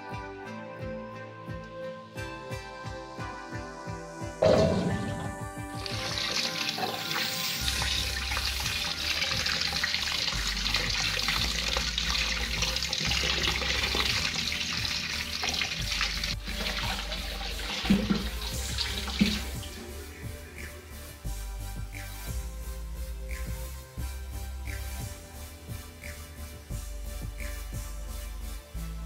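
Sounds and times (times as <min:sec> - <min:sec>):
tap water running into metal sink: 0:05.8 - 0:19.6.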